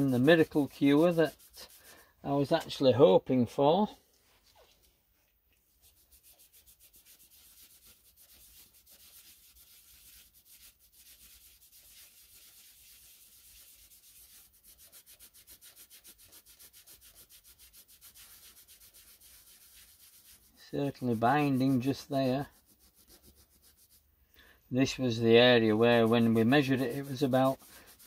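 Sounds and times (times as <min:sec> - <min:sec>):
scouring pad scrubbing metal: 0:00.0 - 0:02.0, 0:05.8 - 0:24.0, 0:25.4 - 0:28.0.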